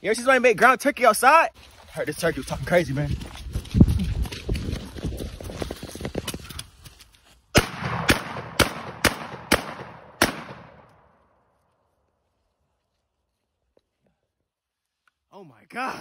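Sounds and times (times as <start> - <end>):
rifle shots: 7.6 - 11.0
gunshot echo: 7.6 - 11.1.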